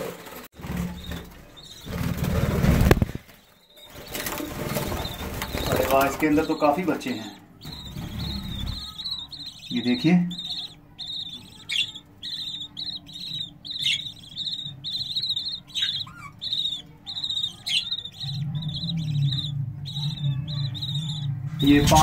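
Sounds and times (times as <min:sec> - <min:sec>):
bird chicks cheeping: 0:00.6 - 0:22.0
sharp falling bird calls: 0:00.6 - 0:22.0
low hum: 0:10.4 - 0:22.0.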